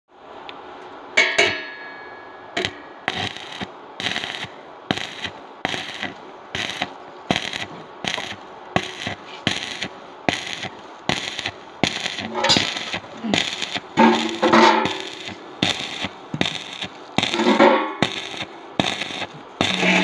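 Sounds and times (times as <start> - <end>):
sharp metallic clink: 1.2 - 2.9, 12.4 - 12.8
welding arc crackling: 2.6 - 20.0.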